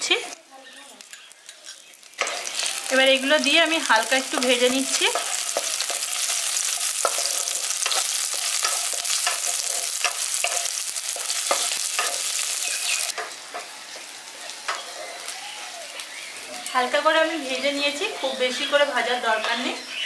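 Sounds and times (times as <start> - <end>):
garlic sizzling in hot oil: 0.0 - 20.0
spatula scraping a pan: 5.1 - 13.0.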